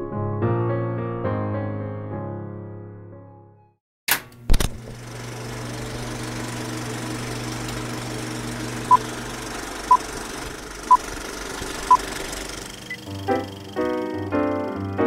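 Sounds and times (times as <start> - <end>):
vehicle engine humming: 5.3 - 15.0.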